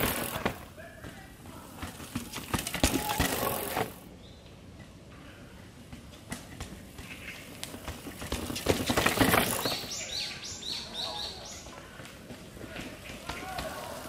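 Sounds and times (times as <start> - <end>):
mountain bike knocking and rattling: 0.0 - 4.1, 5.8 - 10.3, 11.9 - 14.0
bird singing: 8.7 - 12.0.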